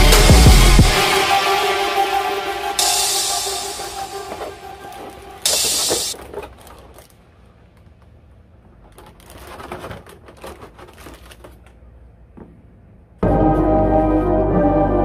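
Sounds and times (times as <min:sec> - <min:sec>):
loud music: 0:00.0 - 0:06.2, 0:13.2 - 0:15.0
plastic packaging crinkling: 0:04.3 - 0:07.9, 0:08.7 - 0:11.9.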